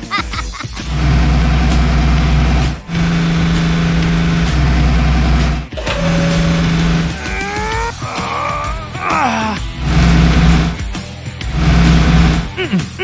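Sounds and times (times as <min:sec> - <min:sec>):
heavy machinery engine running: 0:00.8 - 0:07.4, 0:09.8 - 0:12.6
rising whine: 0:00.9 - 0:07.2, 0:09.8 - 0:10.8, 0:11.5 - 0:12.5.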